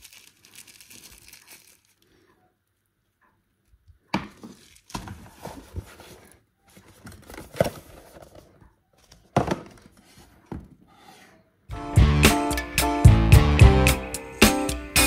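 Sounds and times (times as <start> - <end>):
cardboard rustling and scraping: 4.4 - 11.3.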